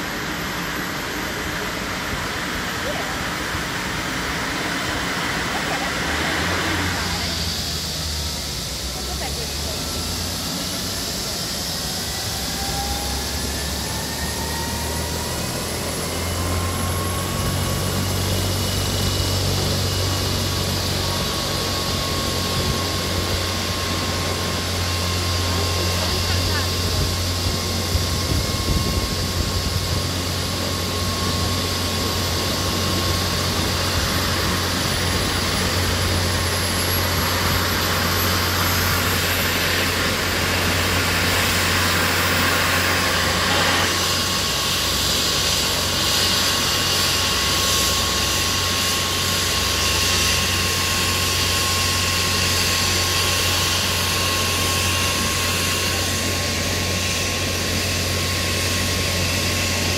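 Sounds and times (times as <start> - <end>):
helicopter turbine whine: 0.0 - 59.9
low rotor hum: 0.0 - 59.9.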